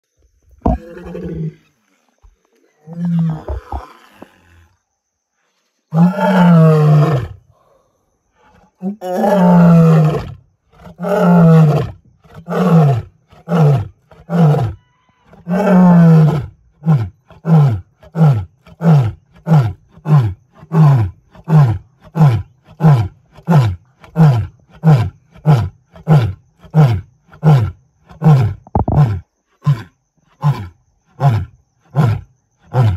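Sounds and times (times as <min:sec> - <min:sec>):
lion grunting calls: 0:02.8 - 0:04.8, 0:27.4 - 0:32.9.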